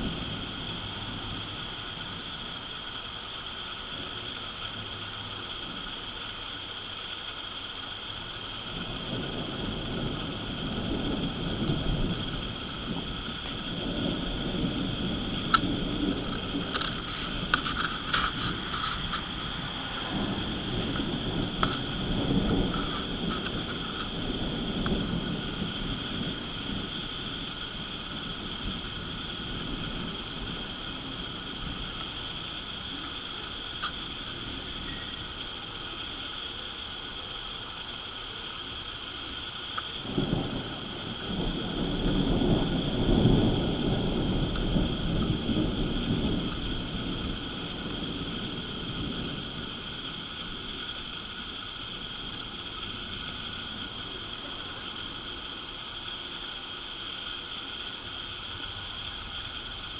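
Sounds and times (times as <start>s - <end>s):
distant thunder rumbling: 0.0s - 6.0s, 8.1s - 37.0s, 39.8s - 56.0s
high-pitched background drone: 32.0s - 36.6s.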